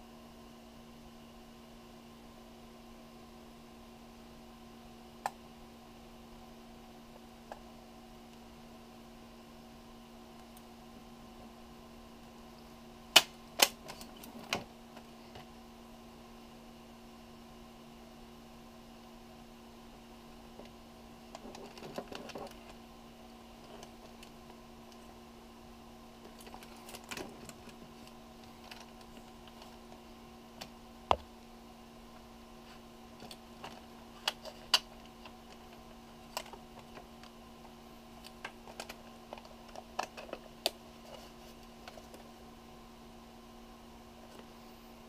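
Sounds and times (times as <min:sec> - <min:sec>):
sharp snap: 0:13.1 - 0:13.8.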